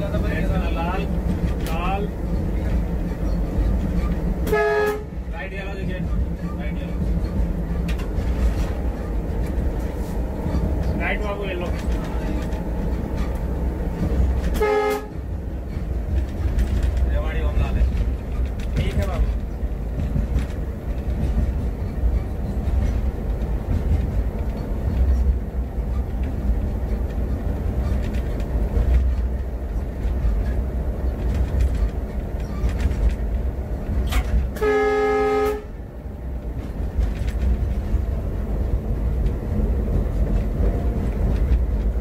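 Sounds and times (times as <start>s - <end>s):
locomotive engine and wheels rumble: 0.0s - 42.0s
locomotive air horn: 4.4s - 5.2s, 14.4s - 15.3s, 34.1s - 35.8s.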